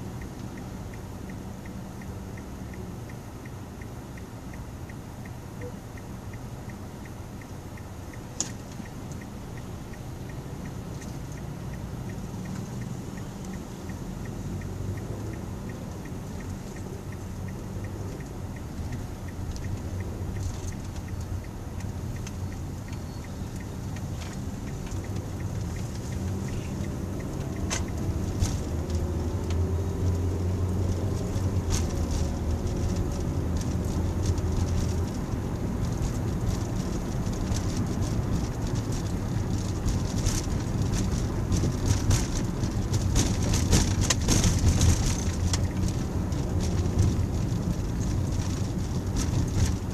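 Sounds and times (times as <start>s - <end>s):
car engine and road noise: 0.0s - 49.9s.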